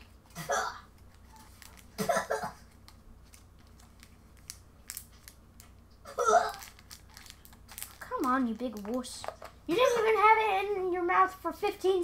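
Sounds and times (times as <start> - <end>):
candy wrapper crinkling: 0.0 - 9.6.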